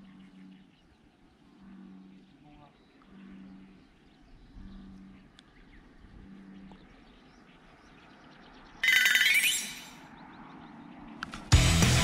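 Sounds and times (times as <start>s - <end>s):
low droning animal call: 0.0s - 6.9s.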